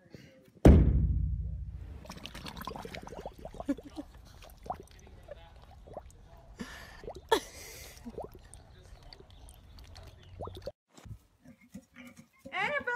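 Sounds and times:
loud thump: 0:00.6 - 0:01.9
water splashing and dripping: 0:01.8 - 0:10.8.

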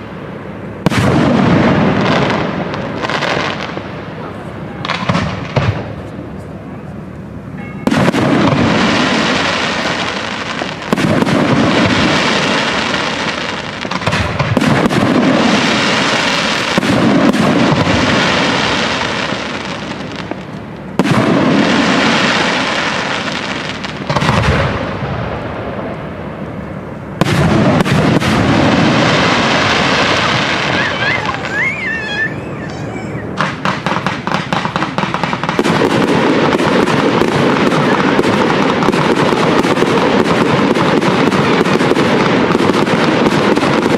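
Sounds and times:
firework crackling and rumbling: 0:00.0 - 0:43.9
firework shells bursting: 0:27.2 - 0:43.9.

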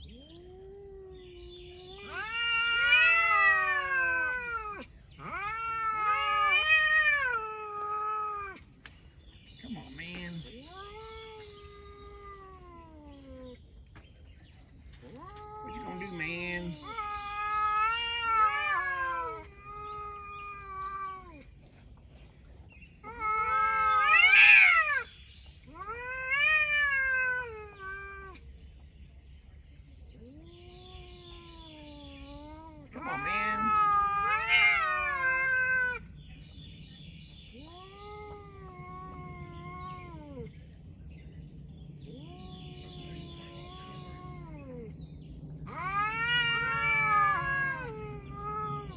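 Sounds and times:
cats yowling: 0:00.0 - 0:08.8, 0:10.0 - 0:13.8, 0:14.8 - 0:22.2, 0:23.0 - 0:28.5, 0:30.1 - 0:36.2, 0:37.5 - 0:40.8, 0:42.0 - 0:48.9.

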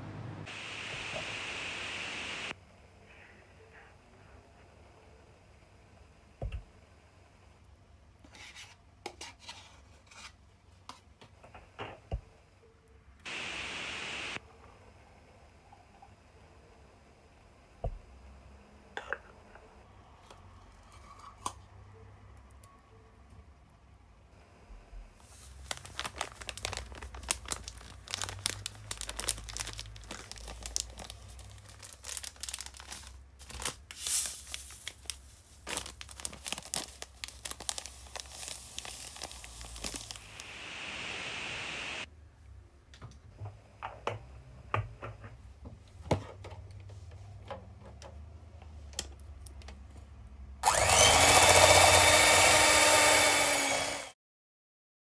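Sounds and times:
paper sachets tearing and crinkling: 0:25.2 - 0:40.6.

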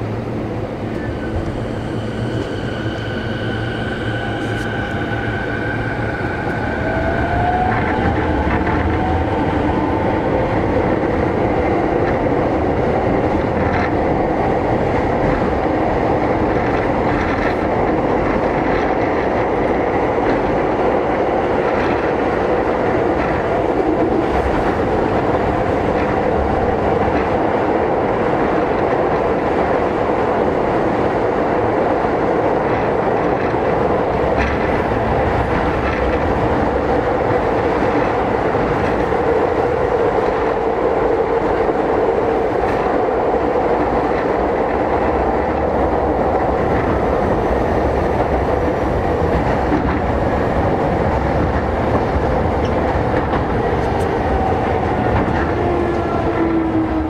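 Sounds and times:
subway train wheels rumbling: 0:00.0 - 0:57.0
rail-joint clicks: 0:32.6 - 0:39.2, 0:49.2 - 0:56.9.

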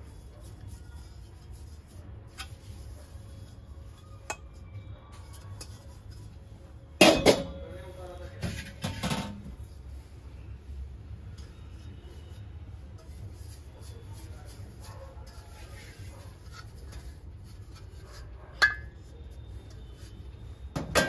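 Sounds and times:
metal vessels clinking: 0:07.0 - 0:07.6, 0:18.6 - 0:19.0
brass vessels clanking: 0:18.6 - 0:19.0.

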